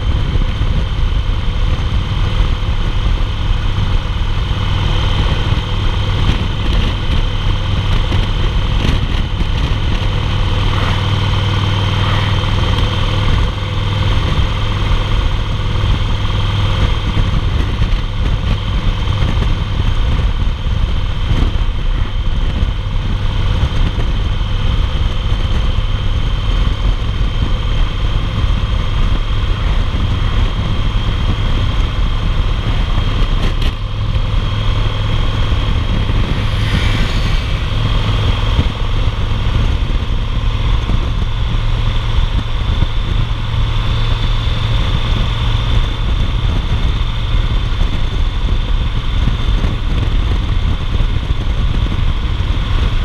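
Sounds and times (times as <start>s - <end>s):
motorcycle engine cruising: 0.0s - 53.0s
wind and road noise: 0.0s - 53.0s.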